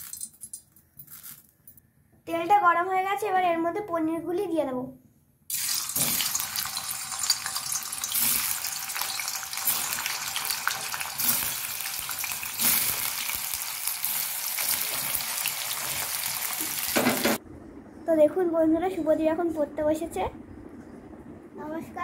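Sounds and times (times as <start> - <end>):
cheese sizzling in hot oil: 5.5 - 17.4.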